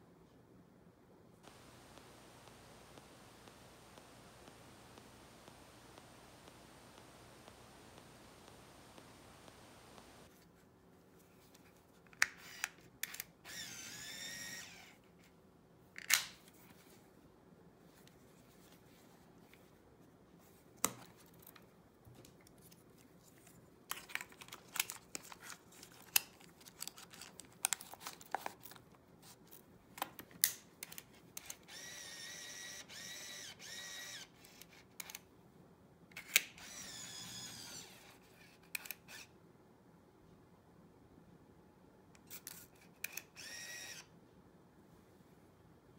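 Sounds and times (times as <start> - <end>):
electric motor whirring: 13.5 - 14.9, 31.7 - 34.2, 36.6 - 37.9, 43.4 - 44.0.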